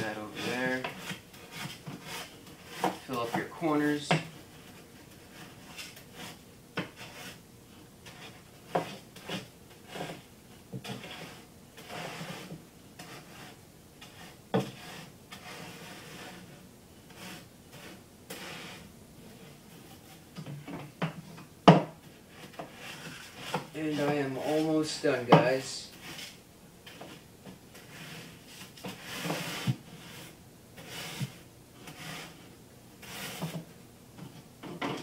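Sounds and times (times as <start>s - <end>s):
board scraping gravel: 0.0s - 4.0s.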